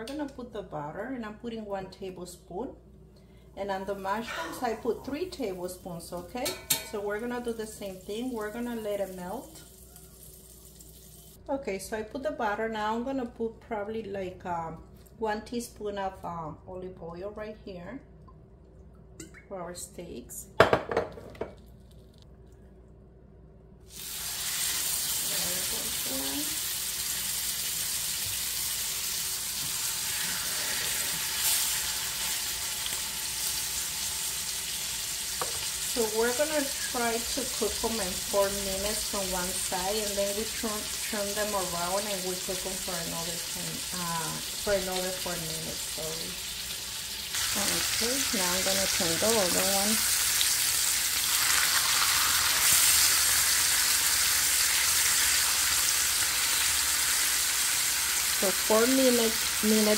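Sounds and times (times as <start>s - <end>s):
steaks sizzling in a skillet: 23.9s - 59.9s.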